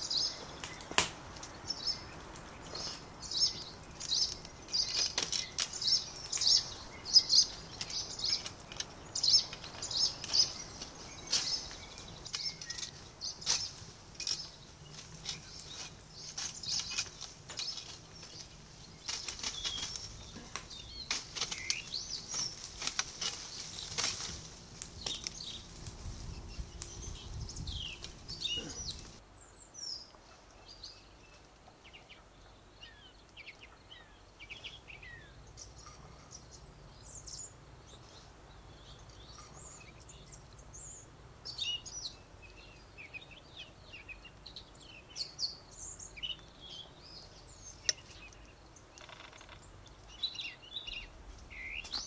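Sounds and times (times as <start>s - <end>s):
branches and leaves rustling: 0.0s - 52.0s
small birds chirping: 0.0s - 52.0s.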